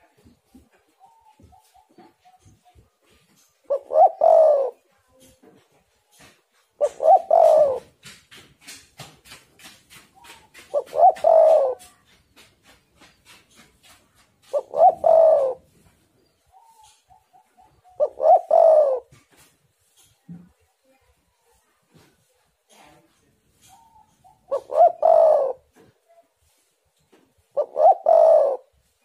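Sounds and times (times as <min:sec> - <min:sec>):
dove cooing: 0:00.0 - 0:05.4, 0:06.1 - 0:08.1, 0:09.6 - 0:19.5, 0:23.6 - 0:26.6, 0:27.4 - 0:29.0.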